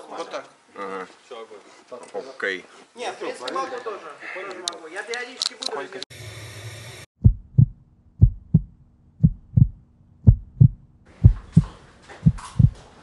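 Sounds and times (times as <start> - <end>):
heartbeat thumps: 7.2 - 12.9.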